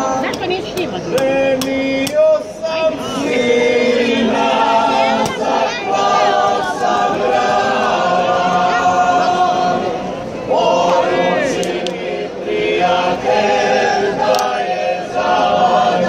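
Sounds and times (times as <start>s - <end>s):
folk group singing in chorus: 0.0s - 16.0s.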